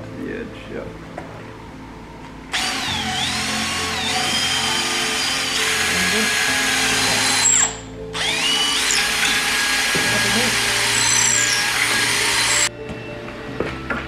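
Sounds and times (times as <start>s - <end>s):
cordless drill motor whine: 2.5s - 12.7s.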